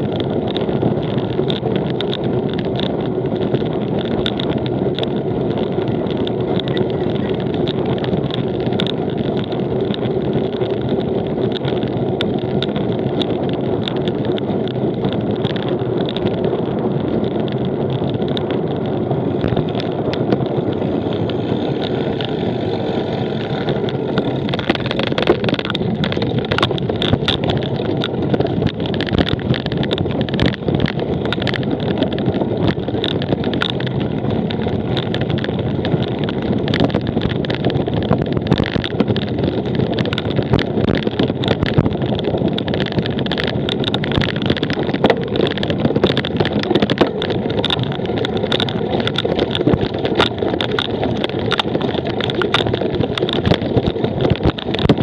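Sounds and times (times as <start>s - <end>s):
bike rattling over rough ground: 0.0s - 55.0s
wind rush over microphone: 0.0s - 55.0s.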